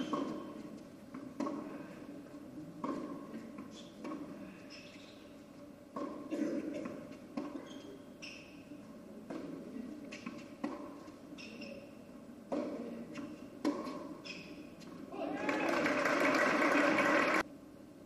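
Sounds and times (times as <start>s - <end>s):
tennis shoes squeaking on court: 0.0s - 1.7s, 2.3s - 15.1s
tennis racket striking ball: 0.0s - 1.9s, 2.8s - 8.6s, 9.2s - 15.0s.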